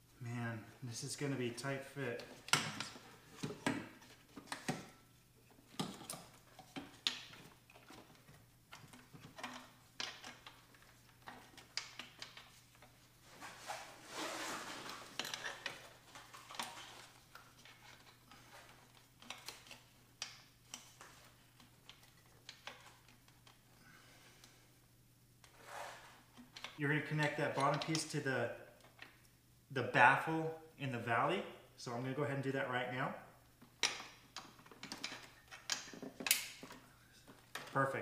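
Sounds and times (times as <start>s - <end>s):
rustling scrape: 13.2s - 15.6s, 25.5s - 26.3s
plastic and metal parts clicking: 33.8s - 37.8s.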